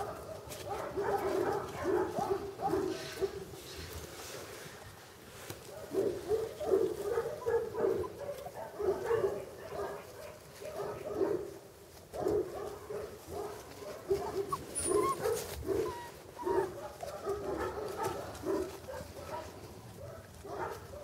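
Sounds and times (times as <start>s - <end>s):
puppies yapping and whining: 13.6s - 19.1s.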